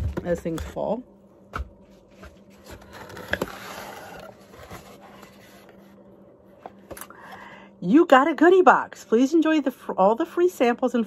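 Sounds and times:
cardboard flaps scraping: 1.6 - 5.9.

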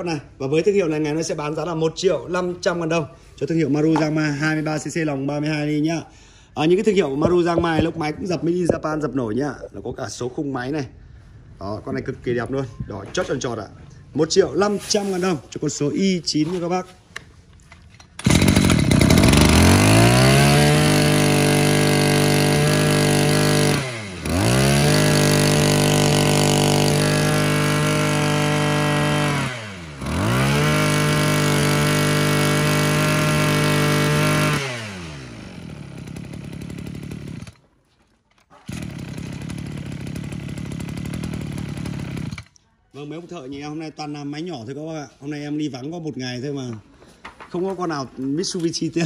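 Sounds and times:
brush cutter engine revving: 6.9 - 8.8, 18.1 - 37.6, 38.5 - 42.6.

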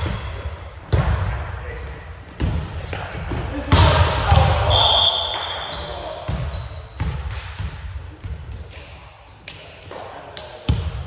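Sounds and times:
sneakers squeaking on gym floor: 0.0 - 8.4.

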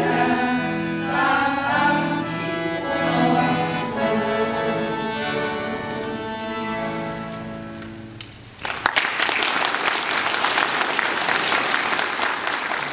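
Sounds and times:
accordion chord: 0.0 - 8.2
audience applause: 8.6 - 12.9.

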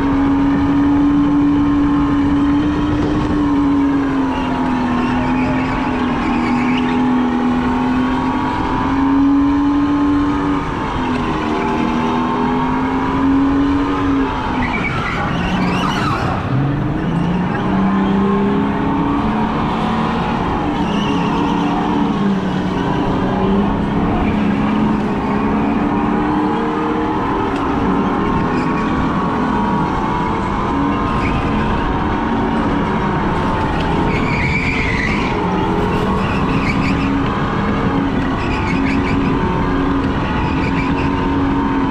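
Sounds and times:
go-kart motor whine: 0.0 - 41.9
tyre squeal: 3.5 - 8.8, 13.2 - 29.0, 33.8 - 39.6, 40.2 - 41.5.

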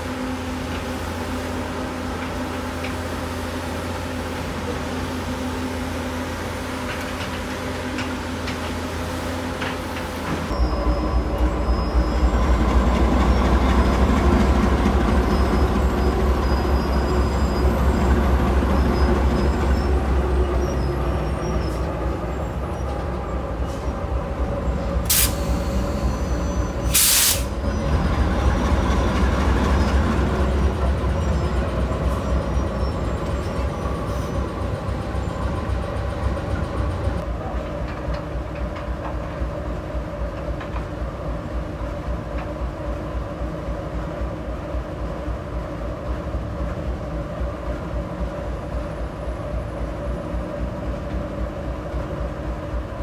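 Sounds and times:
diesel locomotive engine rumble: 0.0 - 53.0
short sharp hisses: 25.1 - 25.8, 26.9 - 27.6.

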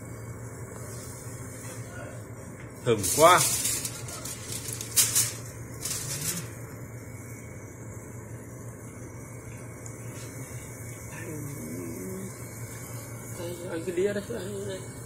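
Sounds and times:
steady low hum: 0.0 - 15.0
aluminium foil crinkling: 2.9 - 6.6.

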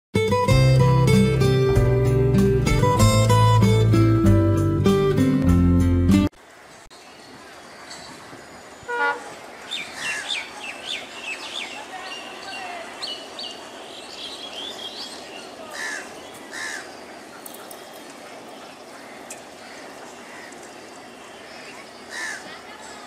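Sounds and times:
birds chirping: 6.4 - 23.0
outdoor background noise: 6.4 - 23.0
harsh low bird calls: 7.1 - 23.0.

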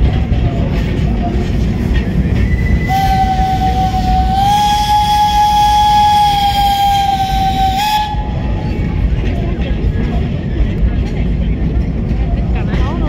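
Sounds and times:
low rumble: 0.0 - 13.0
steam locomotive whistle: 2.4 - 8.9.

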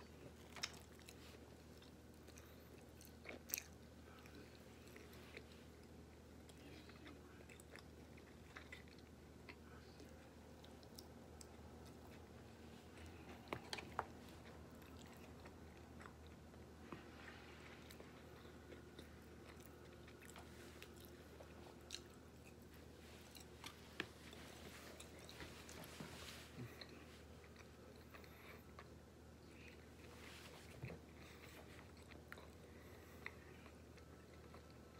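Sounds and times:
person chewing and biting food: 0.1 - 9.7, 17.8 - 34.9.

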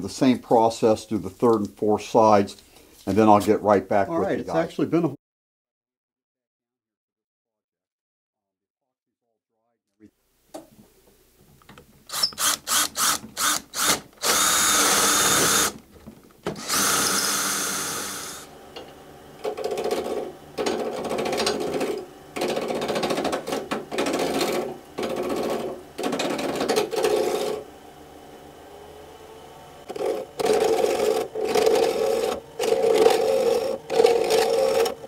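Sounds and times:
chisel cutting on lathe: 12.1 - 15.8, 16.6 - 27.7, 29.8 - 35.0
cordless drill boring: 12.1 - 15.8, 16.5 - 18.8, 21.2 - 27.6, 29.9 - 35.0
wood lathe spinning: 12.1 - 15.8, 16.6 - 35.0.

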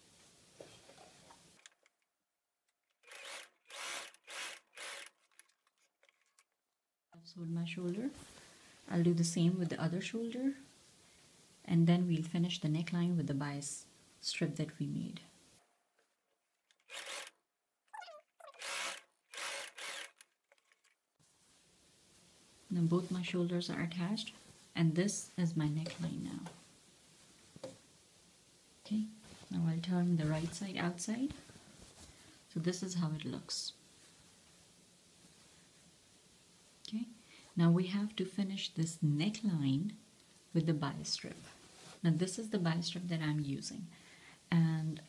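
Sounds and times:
sewing machine stitching: 3.0 - 6.3, 16.8 - 17.3, 18.5 - 20.9
fabric rustling and scraping: 29.2 - 32.3, 41.3 - 42.1.

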